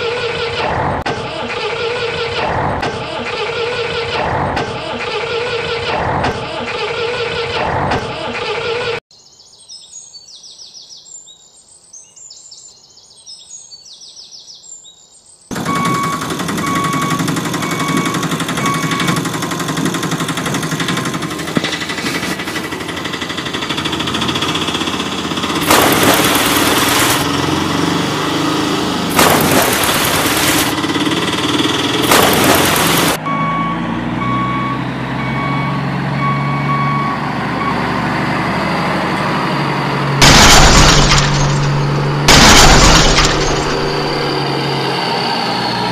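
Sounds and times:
truck engine running: 15.5s - 45.9s
reversing beep: 15.6s - 19.3s, 33.2s - 38.0s.

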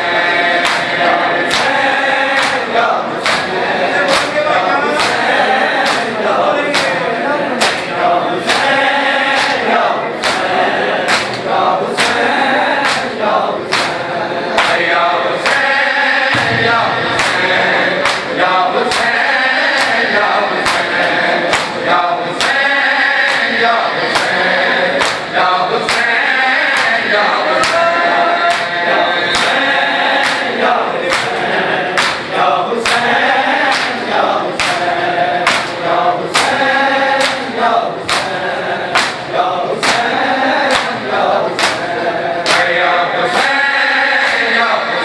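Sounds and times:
men chanting together: 0.0s - 45.0s
hands slapping chests: 0.6s - 4.4s, 5.0s - 7.0s, 7.6s - 7.9s, 8.5s - 9.6s, 10.2s - 11.4s, 12.0s - 12.2s, 12.8s - 13.1s, 13.7s - 15.7s, 16.4s - 21.8s, 22.4s - 22.6s, 23.2s - 25.3s, 25.9s - 26.1s, 26.7s - 27.9s, 28.5s - 29.6s, 30.2s - 33.1s, 33.7s - 34.0s, 34.6s - 36.6s, 37.2s - 39.2s, 39.8s - 41.0s, 41.6s - 43.5s.

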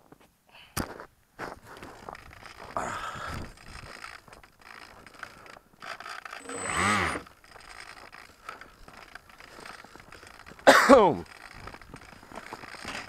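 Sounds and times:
electric motor whine: 3.5s - 10.6s.

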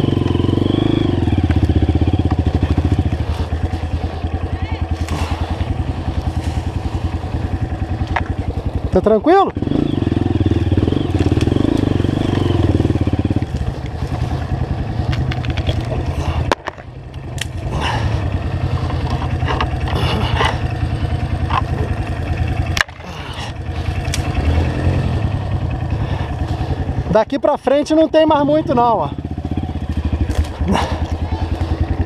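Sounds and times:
dirt bike engine at low revs: 0.0s - 32.0s
branches scraping and snapping: 1.4s - 8.9s, 10.7s - 18.0s, 18.6s - 24.5s, 29.8s - 32.0s.

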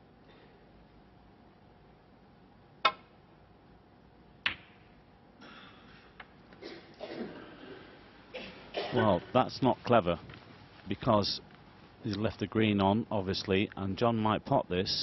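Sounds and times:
cue striking ball click: 2.8s - 3.1s, 4.4s - 4.8s
balls colliding click: 2.8s - 3.2s, 4.4s - 5.0s
faint background hush: 5.0s - 15.0s.

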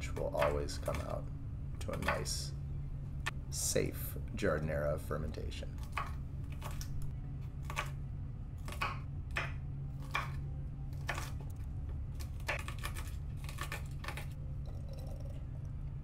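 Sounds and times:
low hum: 0.0s - 16.0s
knife chopping on wooden board: 8.6s - 10.4s, 11.0s - 11.4s.

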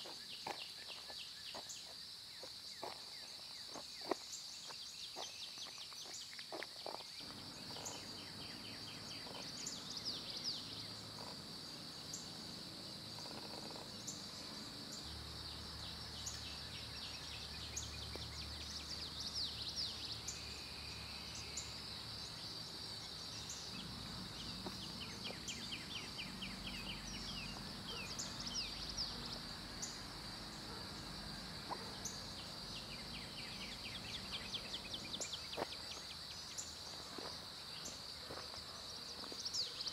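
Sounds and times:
birds chirping and trilling: 2.8s - 31.1s, 31.7s - 37.1s
high-pitched insect buzz: 6.0s - 18.3s.

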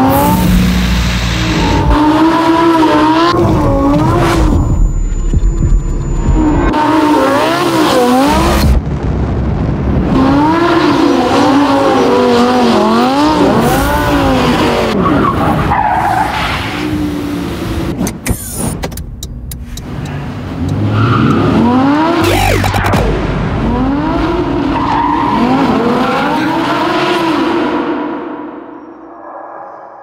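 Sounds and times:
car engine revving: 0.0s - 18.4s, 19.0s - 28.4s
tyres skidding: 10.4s - 27.8s.

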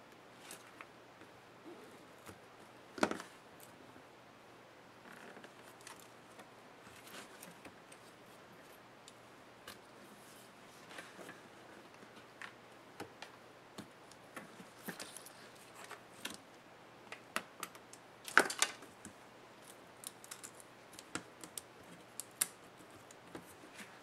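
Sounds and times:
plastic and wire clicks and rustles: 5.1s - 8.1s, 10.9s - 16.4s, 17.1s - 24.0s.

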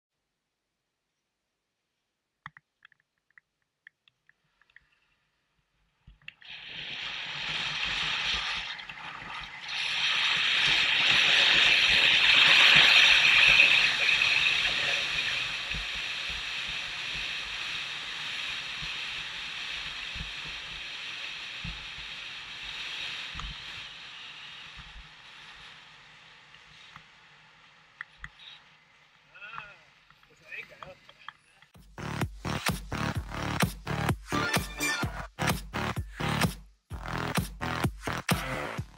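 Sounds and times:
skis scraping over snow: 9.9s - 27.0s.

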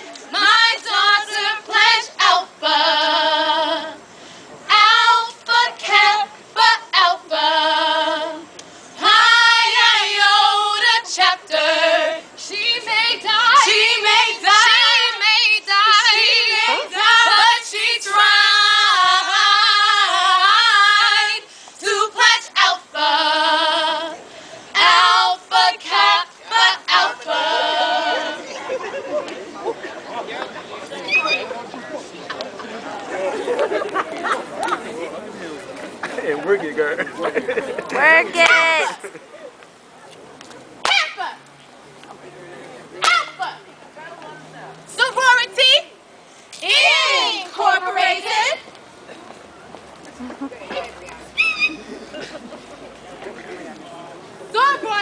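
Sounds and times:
women singing a cappella: 0.0s - 28.8s, 44.9s - 45.9s, 46.6s - 48.7s, 54.5s - 55.0s.

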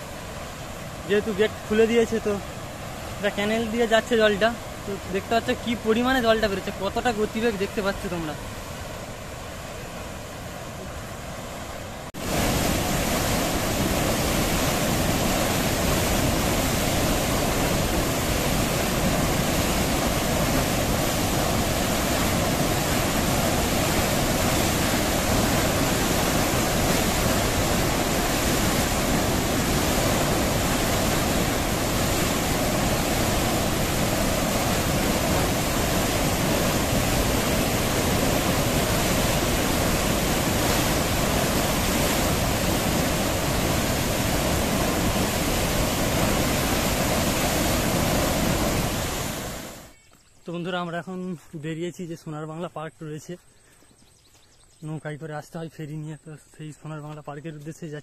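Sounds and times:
water rushing through sluice gate: 0.0s - 49.9s.

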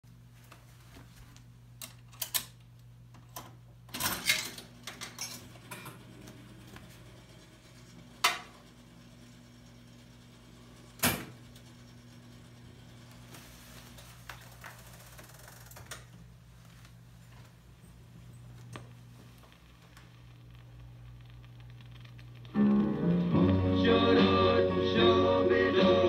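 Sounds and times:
steady low hum: 0.1s - 26.0s.

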